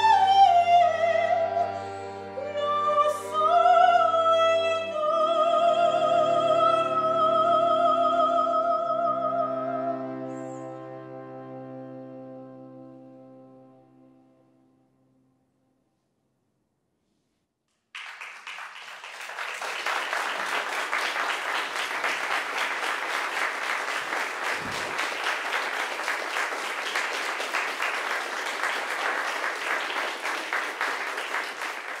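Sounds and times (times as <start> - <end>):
audience applause: 18.0 - 32.0.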